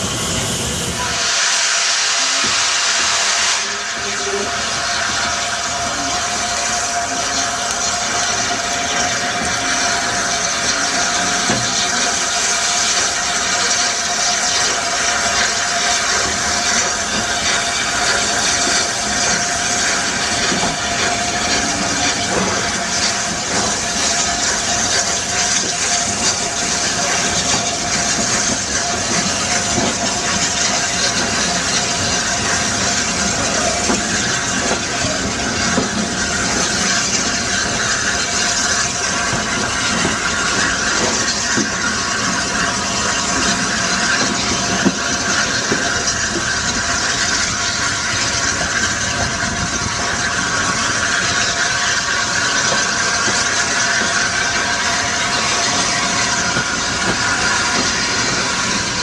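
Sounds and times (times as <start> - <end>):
steam hissing: 0.0 - 59.0
train rumble: 0.0 - 59.0.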